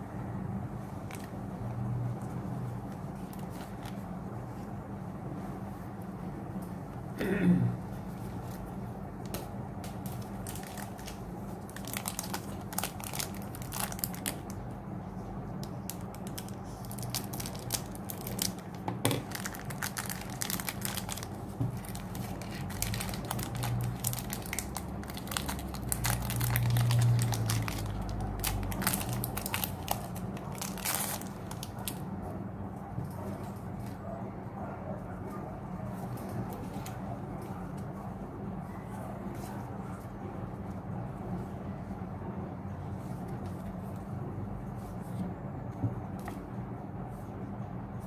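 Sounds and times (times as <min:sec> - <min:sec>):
foil wrapper crinkling and tearing: 0:10.0 - 0:14.6, 0:15.6 - 0:32.0.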